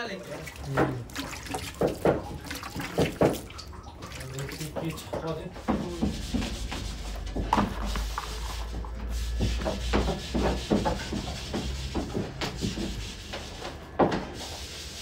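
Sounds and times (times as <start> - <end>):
hands scraping filling from bowl: 0.1 - 11.9.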